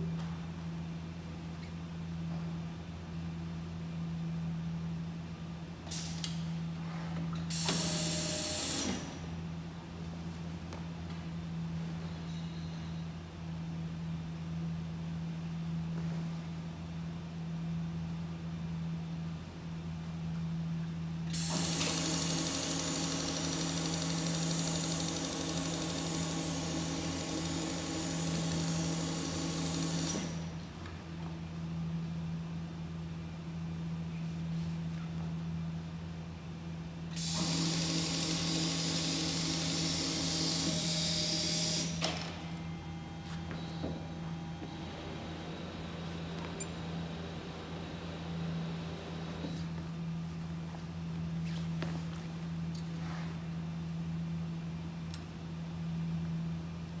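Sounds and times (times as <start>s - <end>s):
low machine hum: 0.0s - 57.0s
low hum: 42.1s - 55.2s.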